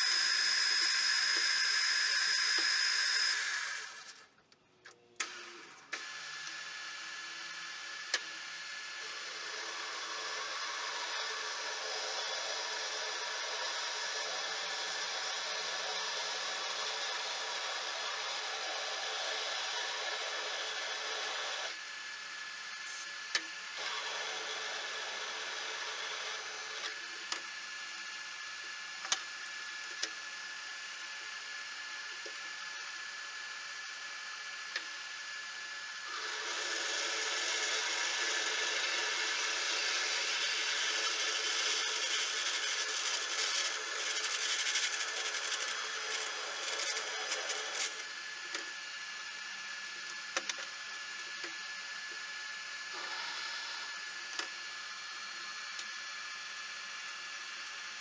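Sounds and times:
metal lathe motor running: 0.0 - 4.2, 6.0 - 58.0
tool cutting steel hiss: 0.0 - 4.2
drill bit boring metal: 0.0 - 4.3, 5.2 - 58.0.

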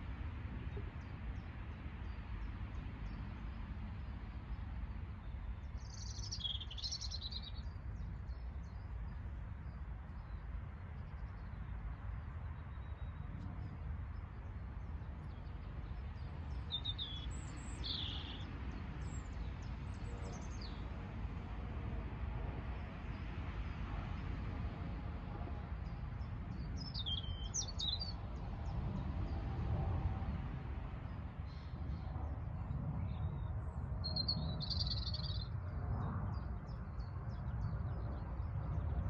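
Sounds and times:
songbird chirping: 15.2 - 20.8
steady low rumble: 18.7 - 39.0.

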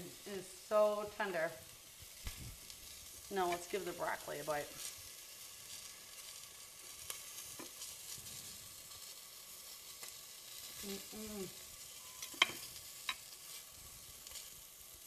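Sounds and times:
faint hiss: 0.0 - 15.0
person humming mmm: 10.8 - 11.7.

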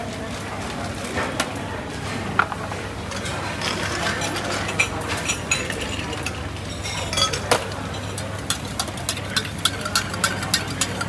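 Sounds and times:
ice clinking against glass mug: 3.1 - 11.0.

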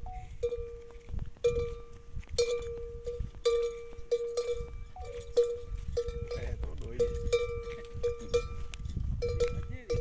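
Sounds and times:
camel bell clanking: 0.0 - 10.0.

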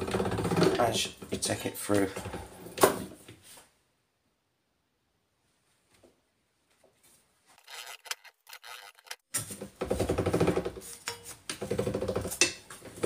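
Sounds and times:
steel grating through rollers: 7.6 - 9.2.

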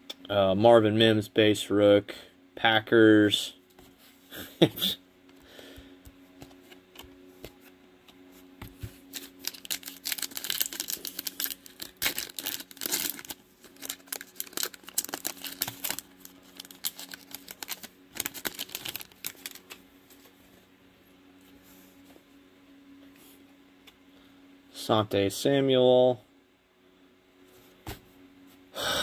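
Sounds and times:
wrapper crinkling: 9.0 - 19.8.

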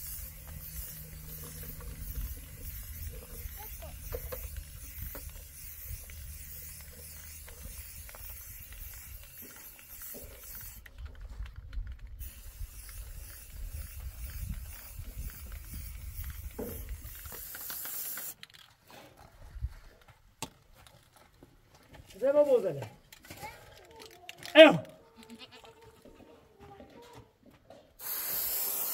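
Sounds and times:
wind noise on microphone: 0.0 - 9.4, 10.2 - 17.4, 19.4 - 19.9.

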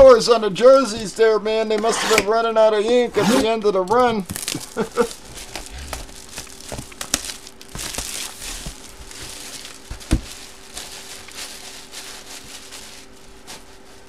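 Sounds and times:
cardboard box rustling and scraping: 4.3 - 14.0.

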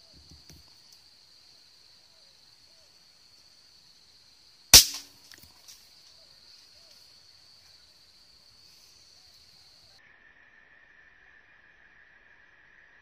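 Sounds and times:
air rifle shot: 4.8 - 5.1.

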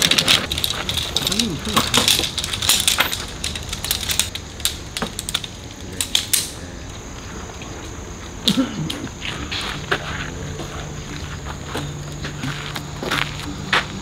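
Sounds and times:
small objects clicking and knocking: 0.0 - 6.7.

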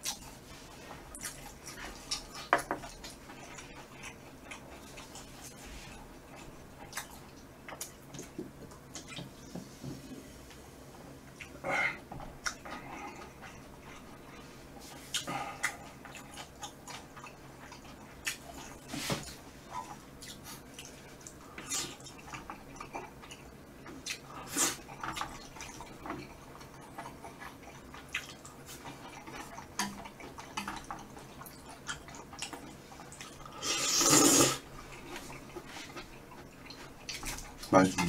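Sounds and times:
wet chewing: 0.0 - 9.4, 12.4 - 38.0
noodle slurp: 33.6 - 34.6.

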